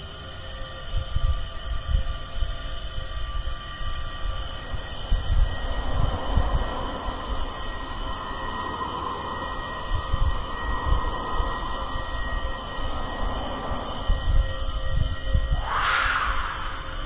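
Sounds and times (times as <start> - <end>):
crickets chirping: 0.0 - 17.0
low rumble: 15.4 - 17.0.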